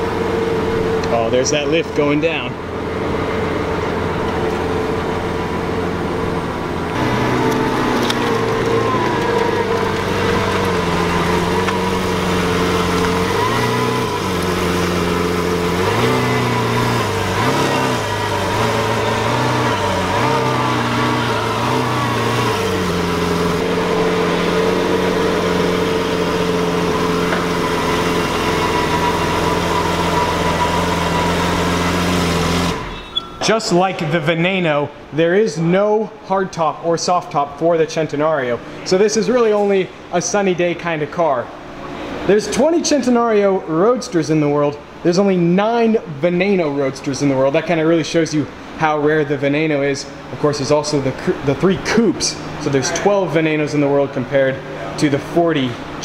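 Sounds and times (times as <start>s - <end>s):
car engine idling: 0.0s - 34.3s.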